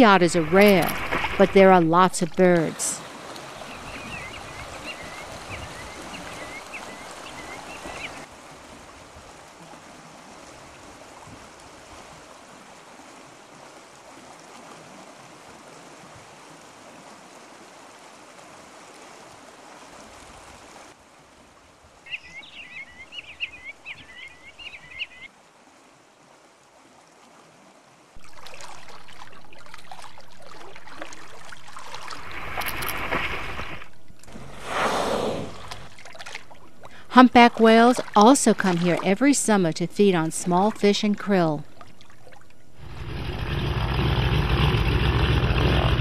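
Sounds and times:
flowing water: 0:00.0 - 0:46.0
bird chirping: 0:22.1 - 0:25.3.

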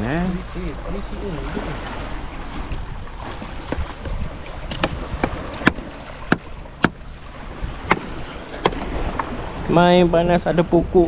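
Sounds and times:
low rumble of water and wind: 0:00.0 - 0:11.0
sharp knocks: 0:04.7 - 0:07.0, 0:07.8 - 0:09.3.

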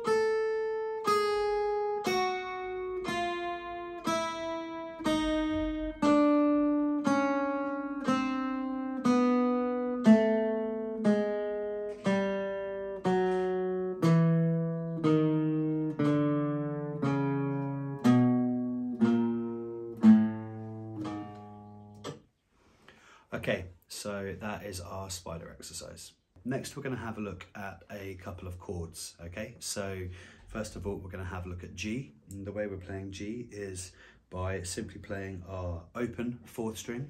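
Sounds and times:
acoustic guitar picked notes: 0:00.0 - 0:23.1.

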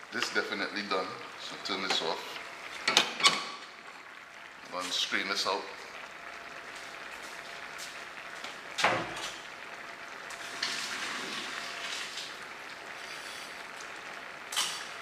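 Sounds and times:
water pouring into sink: 0:10.3 - 0:12.7.

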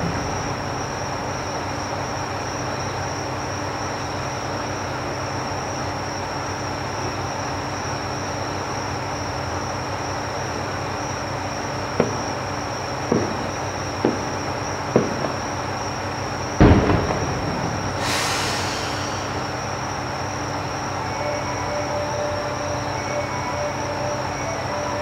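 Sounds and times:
loud firework boom: 0:00.0 - 0:02.4, 0:16.6 - 0:19.6
distant firework pops: 0:12.0 - 0:12.4, 0:13.0 - 0:15.6, 0:16.6 - 0:18.3
brief hiss: 0:17.8 - 0:19.7.

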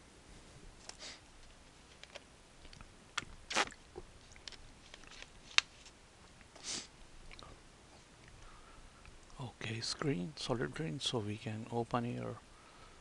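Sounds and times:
short hissing puffs: 0:06.6 - 0:06.9.

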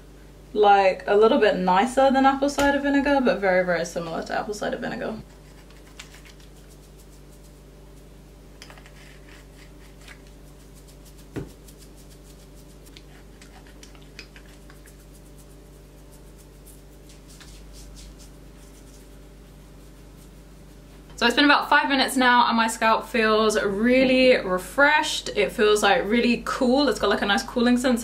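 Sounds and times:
steady low hum: 0:00.0 - 0:28.0
fingers scratching hair: 0:05.2 - 0:21.1.

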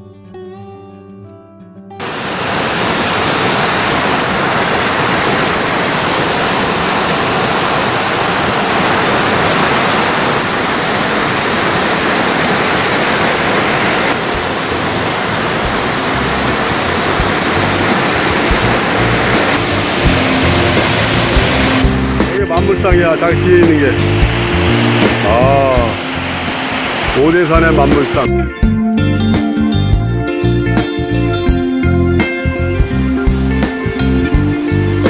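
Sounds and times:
waterfall rushing: 0:02.0 - 0:28.3.

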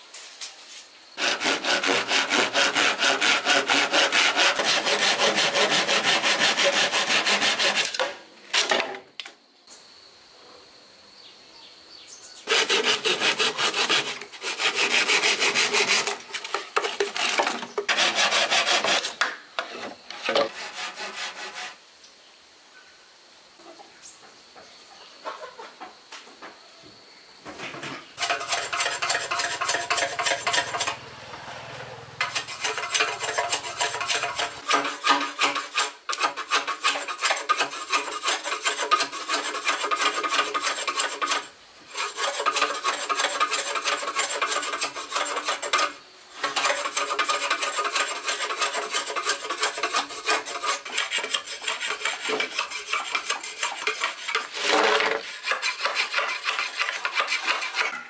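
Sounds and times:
rapid scraping and rubbing strokes: 0:28.2 - 0:58.0.

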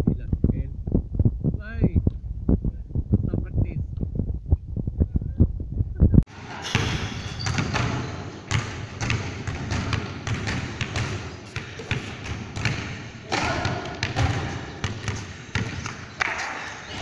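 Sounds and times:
basketball bouncing on court: 0:06.4 - 0:17.0.

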